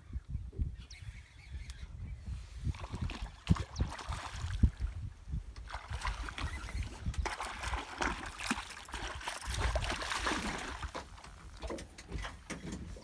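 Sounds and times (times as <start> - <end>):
fish splashing in water: 5.6 - 11.2.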